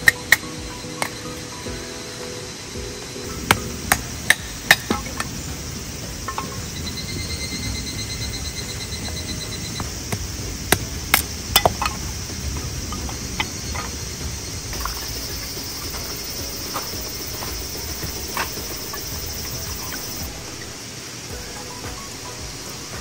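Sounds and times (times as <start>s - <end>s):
high insect chirr: 0.0s - 23.0s
hatchet chopping kindling: 3.4s - 6.6s, 9.8s - 20.3s
clacks of split sticks: 3.5s - 5.4s, 10.1s - 14.0s.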